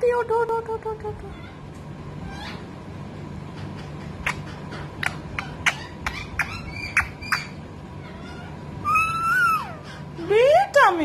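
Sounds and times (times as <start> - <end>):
parakeet chirping: 3.8 - 9.8
parakeet long drawn call: 5.1 - 10.0.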